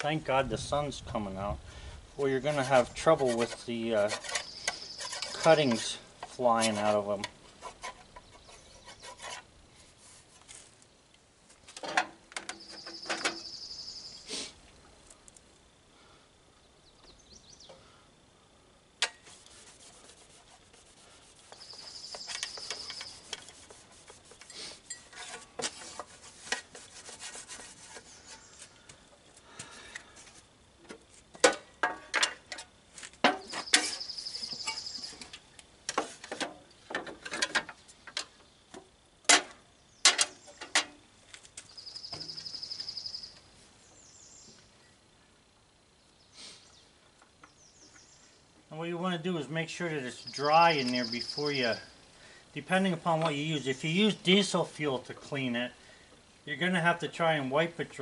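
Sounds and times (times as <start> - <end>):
rag scrubbing metal: 2.4 - 10.4, 19.0 - 28.6
metal part scrapes and knocks: 2.5 - 7.0, 7.6 - 9.5, 11.8 - 13.6, 24.4 - 28.6, 30.9 - 38.3.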